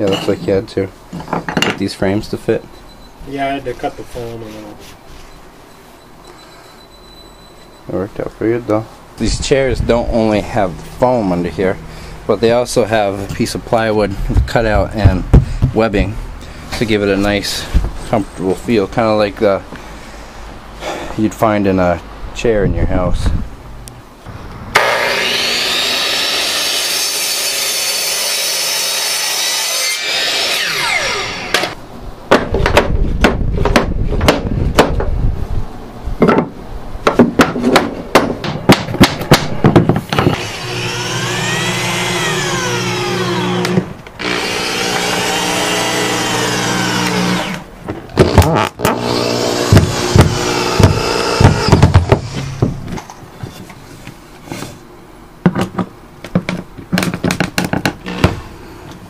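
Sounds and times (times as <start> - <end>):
electric miter saw cutting wood: 24.7 - 31.8, 40.2 - 47.7, 48.3 - 52.7.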